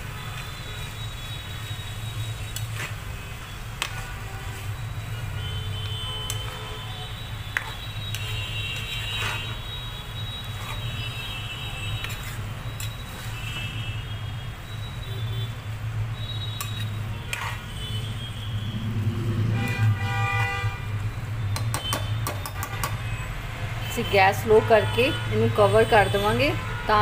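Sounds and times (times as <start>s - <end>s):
metal ladle scraping a pan: 7.6s - 9.7s, 10.4s - 11.2s, 11.8s - 13.5s, 16.2s - 18.7s
metal squeaking on pan: 7.6s - 11.1s, 16.2s - 17.7s.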